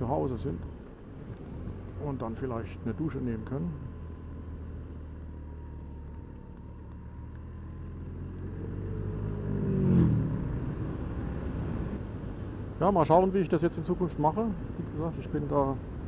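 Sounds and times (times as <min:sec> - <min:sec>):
vehicle passing by: 0:06.9 - 0:12.0.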